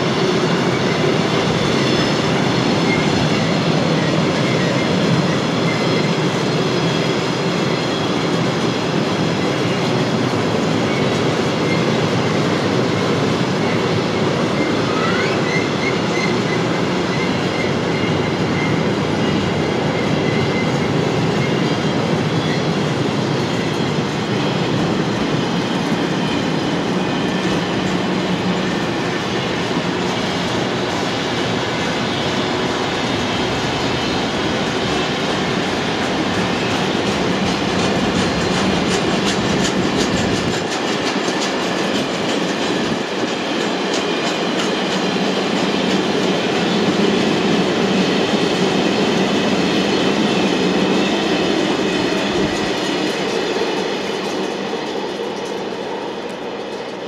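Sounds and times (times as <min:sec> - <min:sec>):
train wheels rumbling on rail: 0:00.0 - 0:57.0
wheels clacking over rail joints: 0:35.4 - 0:57.0.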